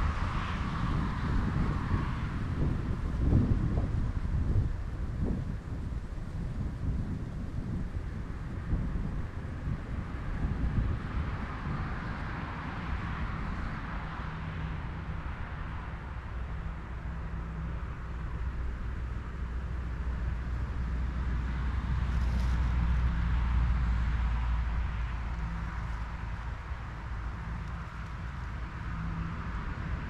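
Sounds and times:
low traffic rumble: 0.0s - 30.0s
tyre hiss of passing vehicle: 9.6s - 30.0s.

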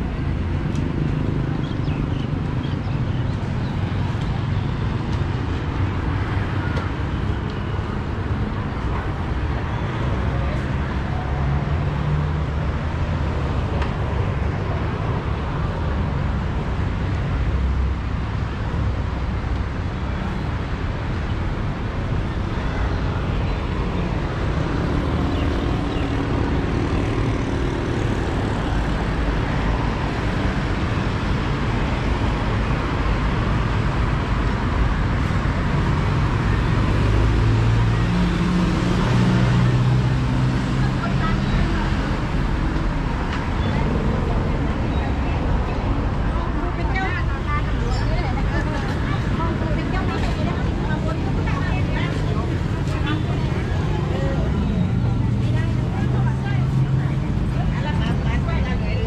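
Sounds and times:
road traffic rumble: 0.0s - 59.0s
faint voices: 36.7s - 59.0s.

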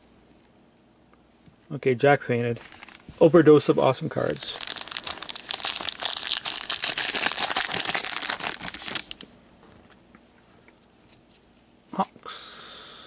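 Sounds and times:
wrapper tearing and crinkling: 2.6s - 3.0s, 4.2s - 9.3s.

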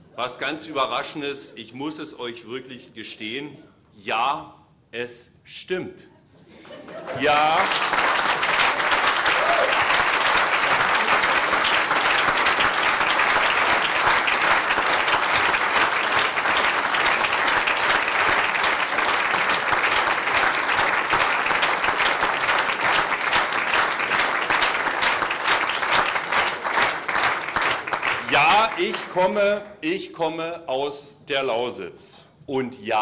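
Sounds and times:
large audience applauding: 6.8s - 29.6s.

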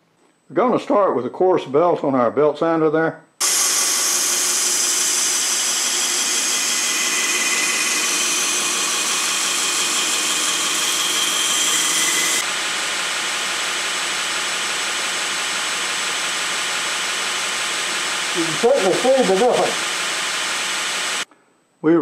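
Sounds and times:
belt sander grinding wood: 3.4s - 12.5s.

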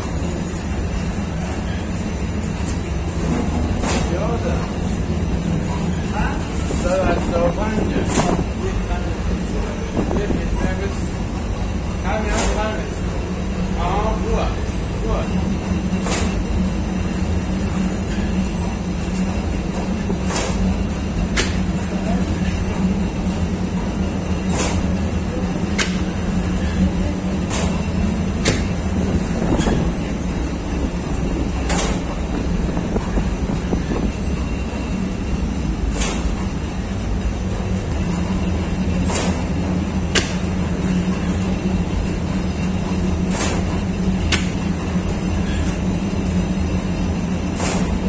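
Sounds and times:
bakery machinery humming: 0.0s - 48.0s
sharp machine knocks: 24.5s - 24.9s, 31.6s - 33.0s, 39.0s - 39.5s, 43.3s - 44.6s, 47.6s - 48.0s.

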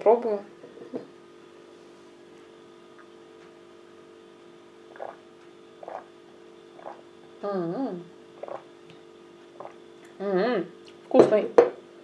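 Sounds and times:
electrical hum: 0.0s - 12.0s
person humming mmm: 6.8s - 8.7s.

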